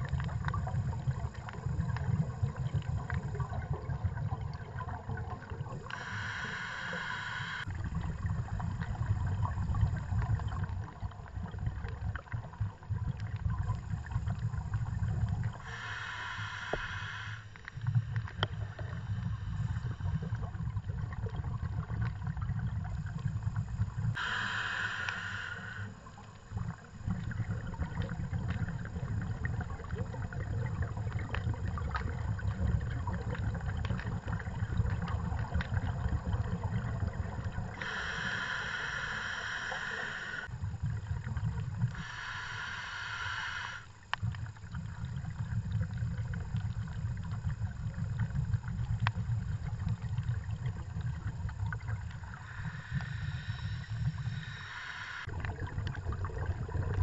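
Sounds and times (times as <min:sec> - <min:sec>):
exhaled bubbles rumbling: 0:00.0 - 0:16.2, 0:16.8 - 0:24.4, 0:25.1 - 0:42.4, 0:43.9 - 0:57.0
regulator inhalation hiss: 0:05.9 - 0:07.7, 0:15.6 - 0:17.6, 0:24.1 - 0:26.2, 0:37.7 - 0:40.6, 0:41.9 - 0:44.0, 0:52.3 - 0:55.3.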